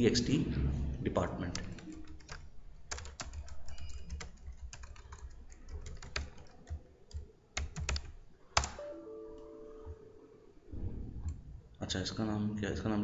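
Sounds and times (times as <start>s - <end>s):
typing on computer keyboard: 1.5s - 8.8s.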